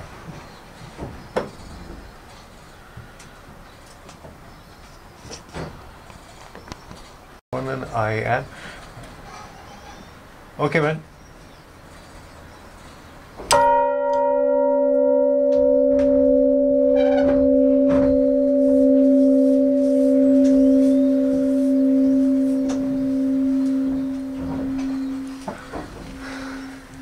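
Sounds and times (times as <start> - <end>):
bell struck and ringing: 13.5 - 27.0.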